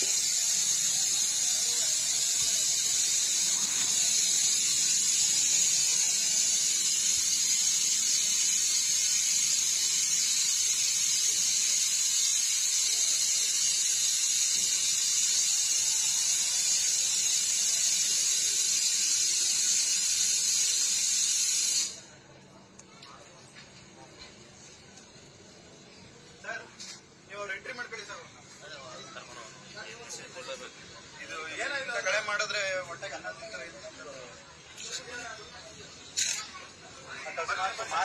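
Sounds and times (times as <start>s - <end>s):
air hissing from brake valve: 0.0s - 22.2s.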